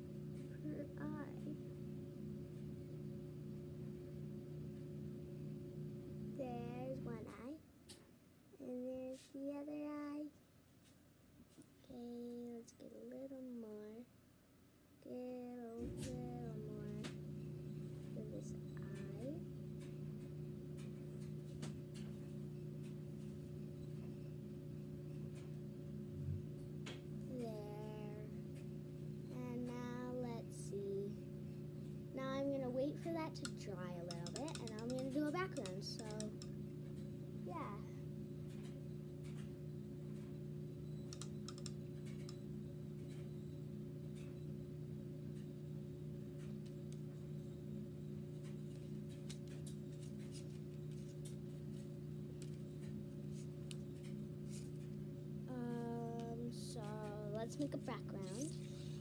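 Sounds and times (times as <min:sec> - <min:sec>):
steady low hum: 0:00.0 - 0:59.0
paintbrush tapping: 0:33.4 - 0:36.5.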